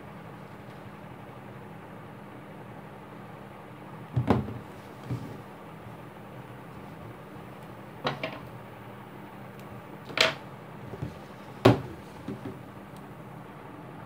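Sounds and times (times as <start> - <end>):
steady low hum: 0.0 - 14.0
sharp handling knocks: 4.2 - 5.5, 8.0 - 8.5, 10.1 - 12.6.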